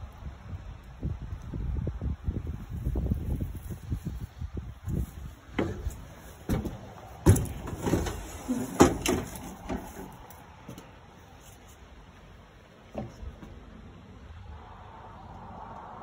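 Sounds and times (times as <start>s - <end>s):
metal compartment lid clunking: 5.5s - 10.9s.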